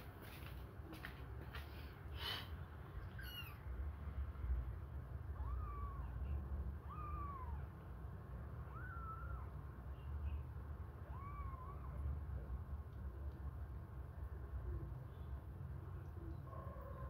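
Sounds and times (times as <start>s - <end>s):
kittens mewing: 3.0s - 3.7s, 5.3s - 7.9s, 8.6s - 9.6s, 11.0s - 12.2s.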